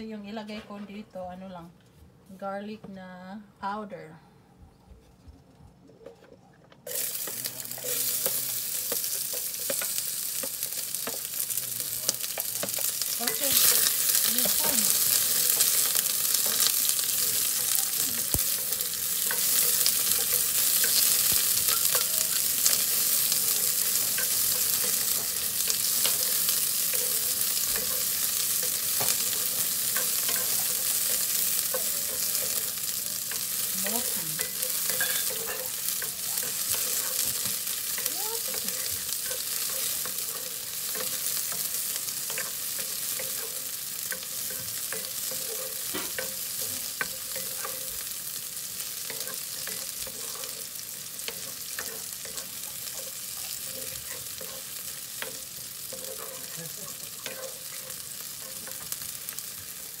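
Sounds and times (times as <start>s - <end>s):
onion sizzling in hot oil: 6.9s - 60.0s.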